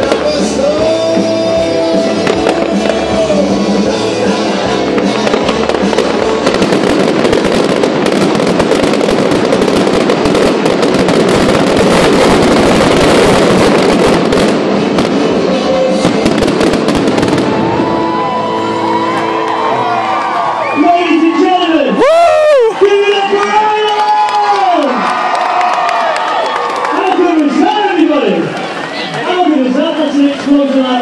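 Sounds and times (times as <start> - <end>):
fireworks bursts and crackles: 0.0 - 19.1, 20.8 - 31.0
loud music: 0.0 - 23.8.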